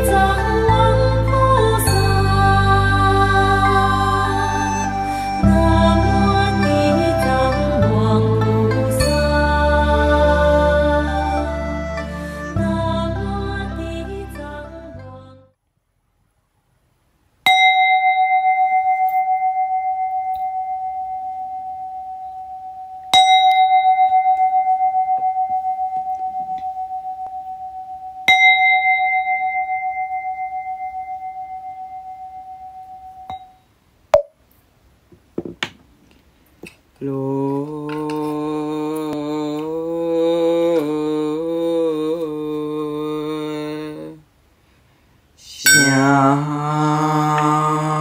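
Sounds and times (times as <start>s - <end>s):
chanting: 0.0s - 15.5s, 37.0s - 44.2s, 45.4s - 48.0s
bowl bell ringing: 17.5s - 33.7s, 45.6s - 46.7s.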